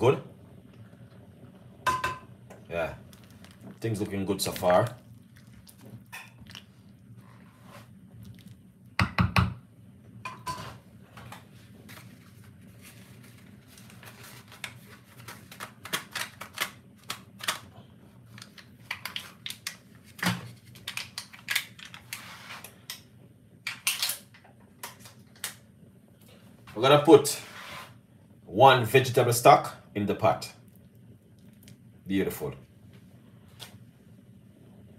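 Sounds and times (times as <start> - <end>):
wooden spoon knocking on pot: 9.0 - 9.6.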